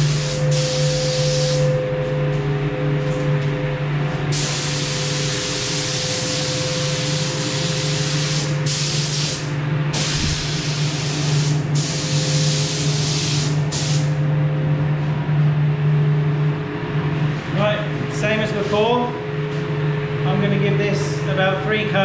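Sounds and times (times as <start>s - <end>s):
spray gun hissing: 0.0s - 1.7s, 4.3s - 9.4s, 10.0s - 14.1s
low hum: 0.0s - 7.4s, 14.1s - 21.8s.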